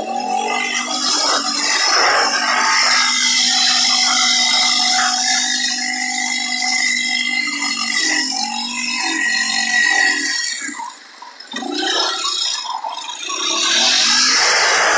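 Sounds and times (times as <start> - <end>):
atv engine running: 0.0 - 14.9.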